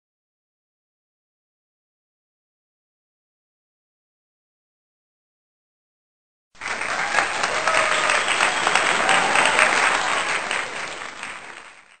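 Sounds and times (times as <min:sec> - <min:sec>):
crowd applause: 0:06.6 - 0:12.0.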